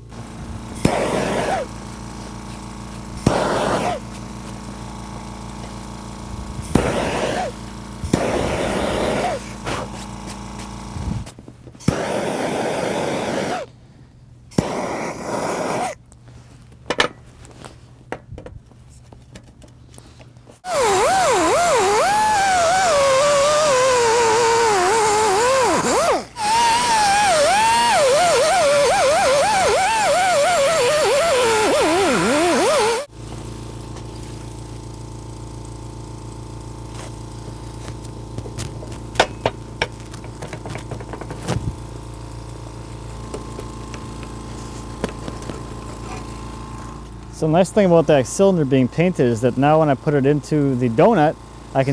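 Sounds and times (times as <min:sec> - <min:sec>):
pneumatic die grinder whining: 0:00.0 - 0:11.1, 0:11.8 - 0:13.7, 0:14.5 - 0:16.0, 0:20.6 - 0:33.4
air compressor humming: 0:00.0 - 0:51.9.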